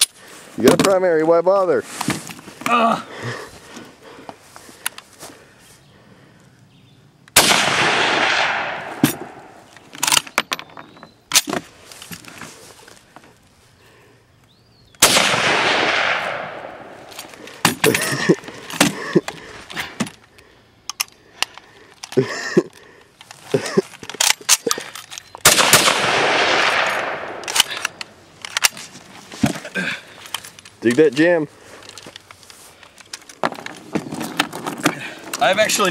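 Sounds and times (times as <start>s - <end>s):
rifle shots with echo: 7.4s - 9.6s, 15.0s - 17.0s, 25.4s - 27.9s.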